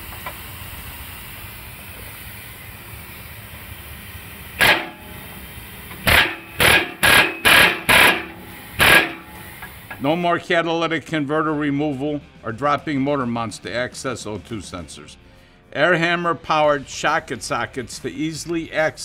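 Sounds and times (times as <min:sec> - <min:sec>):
pneumatic air hammer bursts: 0:04.5 - 0:10.0.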